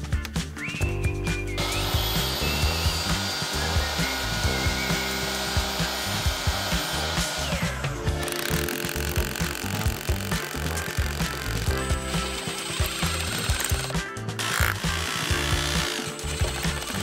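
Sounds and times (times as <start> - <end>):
background music with beat: 0.0 - 17.0
miter saw cutting wood: 1.6 - 17.0.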